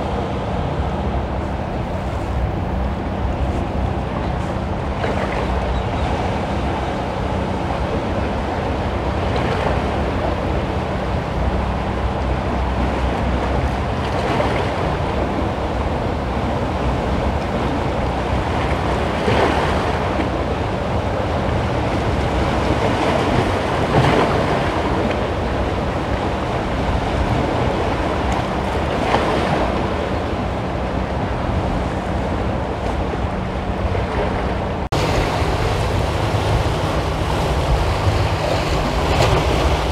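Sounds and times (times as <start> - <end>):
wind on microphone: 0.0 - 39.9
water splashing against boulders: 34.9 - 39.9.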